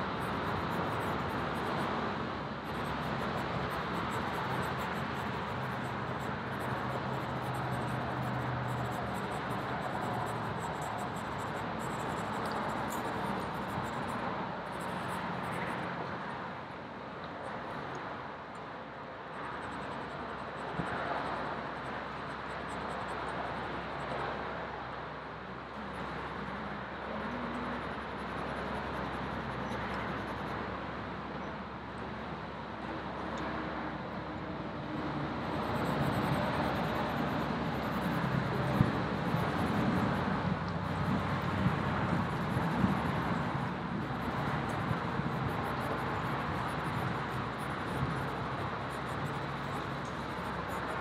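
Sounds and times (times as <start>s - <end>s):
road traffic hum: 0.0s - 51.0s
charcoal scratching on paper: 2.7s - 14.1s.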